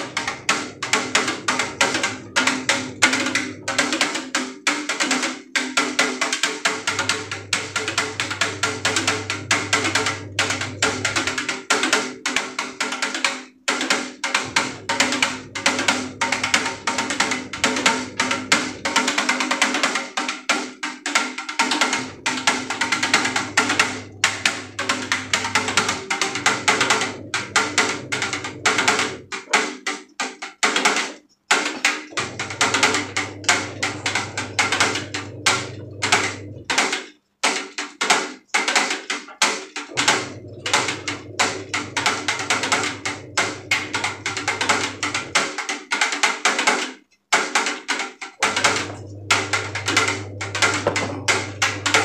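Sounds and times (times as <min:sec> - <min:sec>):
percussive beat: 0:00.0 - 0:13.1, 0:13.8 - 0:36.9, 0:47.4 - 0:52.0
low bass line: 0:06.8 - 0:11.3, 0:14.4 - 0:18.9, 0:22.0 - 0:29.3, 0:32.2 - 0:36.7, 0:40.0 - 0:45.4, 0:48.5 - 0:52.0.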